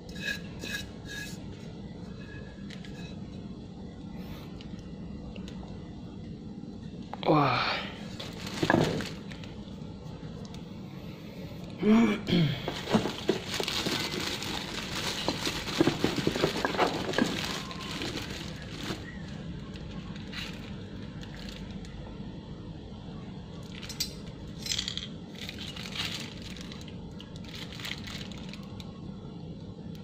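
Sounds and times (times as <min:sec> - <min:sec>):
plastic wrapping crinkling: 0:08.0 - 0:09.8, 0:12.7 - 0:21.9, 0:25.3 - 0:28.9.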